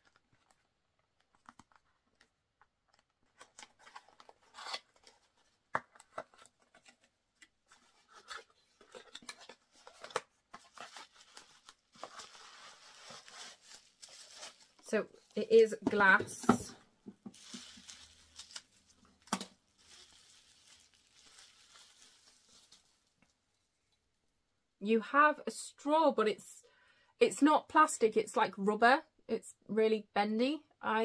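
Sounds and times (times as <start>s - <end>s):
bubble wrap rustling: 7.8s - 15.4s, 17.2s - 23.4s.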